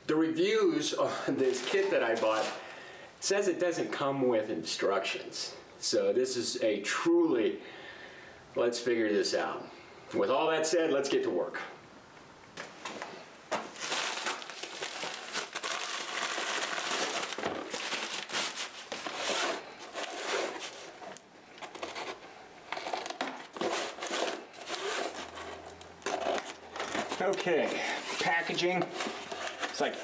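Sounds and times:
plastic mailer crinkling: 1.4 - 2.7, 13.5 - 30.0.

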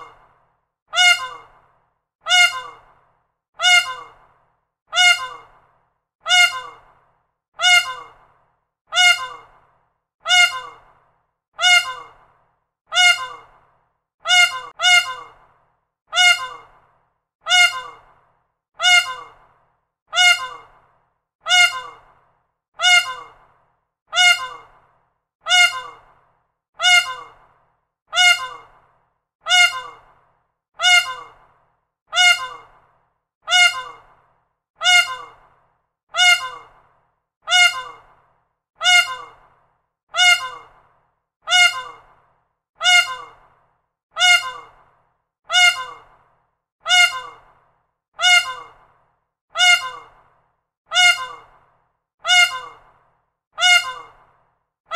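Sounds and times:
peacock honking call: 1.0 - 1.5, 2.3 - 2.8, 3.6 - 4.1, 5.0 - 5.5, 6.3 - 6.8, 7.6 - 8.1, 9.0 - 9.4, 10.3 - 10.8, 13.0 - 13.5, 14.3 - 15.3, 16.2 - 16.7, 24.2 - 24.7, 25.5 - 26.0, 28.2 - 28.7, 29.5 - 30.0, 30.8 - 31.4, 32.2 - 32.7, 33.5 - 34.0, 34.8 - 35.4, 36.2 - 36.7, 37.5 - 38.0, 38.8 - 39.4, 40.2 - 40.7, 41.5 - 42.0, 42.8 - 43.4, 44.2 - 44.7, 45.5 - 46.0, 46.9 - 47.4, 48.2 - 48.7, 49.6 - 50.1, 50.9 - 51.5, 52.3 - 52.8, 53.6 - 54.1.

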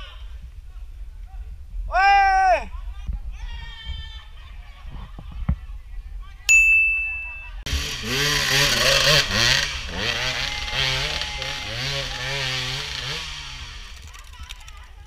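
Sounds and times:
high-pitched tone: 6.5 - 7.7
dirt bike engine revving: 7.7 - 14.7.

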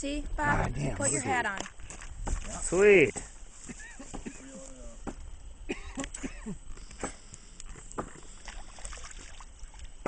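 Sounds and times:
fish splashing at surface: 8.0 - 10.0.

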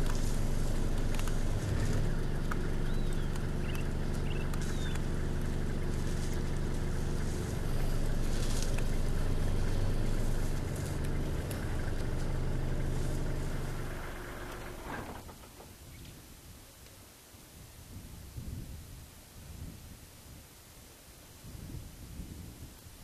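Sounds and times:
vehicle engine idling: 0.0 - 16.0.

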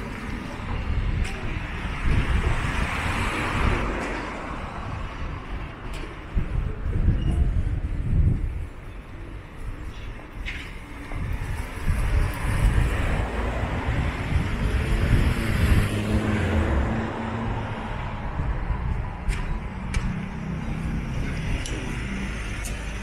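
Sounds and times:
car passing by: 11.8 - 18.9.

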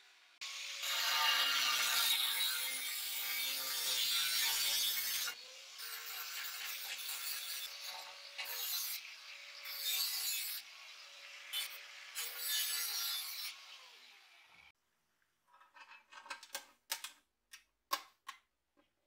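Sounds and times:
angle grinder cutting metal: 0.4 - 14.7.

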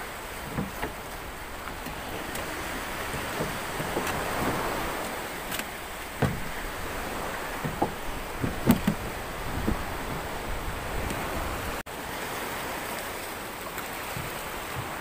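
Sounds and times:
knocks and thuds against boat: 0.0 - 11.8, 14.1 - 15.0
wind on microphone: 0.0 - 11.8
sea waves washing around boat: 0.0 - 15.0.

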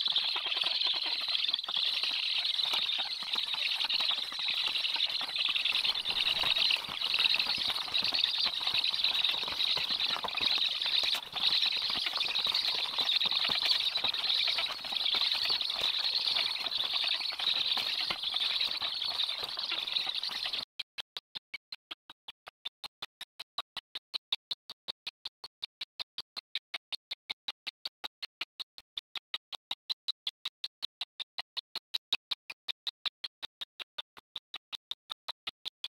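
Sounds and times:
wings flapping: 0.0 - 20.6.

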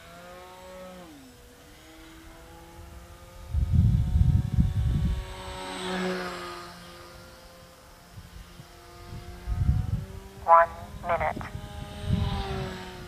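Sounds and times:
model plane motor whining: 0.0 - 10.2.

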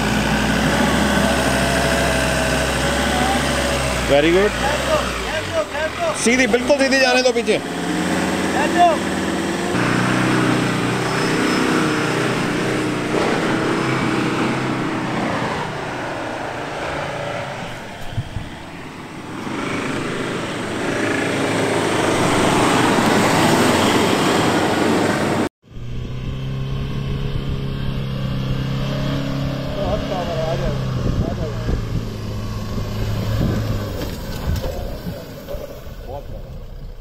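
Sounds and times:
diesel engine running hard: 0.0 - 37.0
engine humming: 0.0 - 37.0.

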